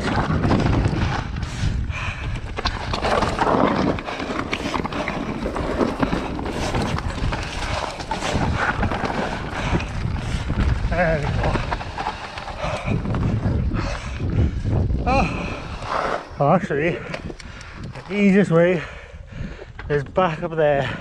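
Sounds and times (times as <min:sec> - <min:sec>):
bike clattering and rattling: 0:00.0 - 0:17.9
tyres crunching over stones: 0:02.2 - 0:18.5.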